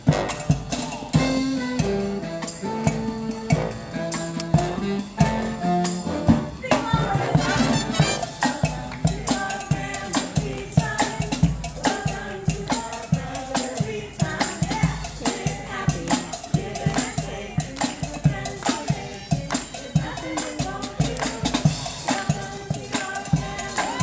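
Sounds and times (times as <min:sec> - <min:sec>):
brass marching band playing: 0:00.0 - 0:24.0
shaken percussion: 0:00.0 - 0:24.0.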